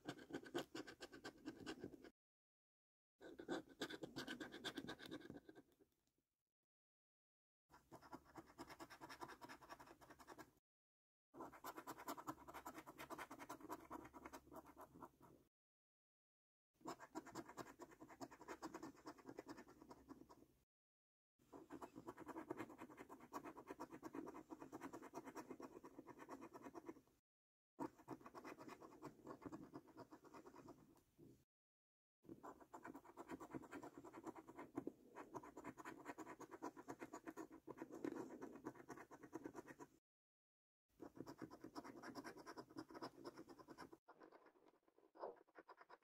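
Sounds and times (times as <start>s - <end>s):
coin scratching a scratch card: 3.3s - 5.7s, 7.8s - 10.5s, 11.4s - 15.1s, 16.9s - 20.3s, 21.6s - 27.0s, 27.8s - 30.8s, 32.4s - 39.9s, 41.0s - 46.0s.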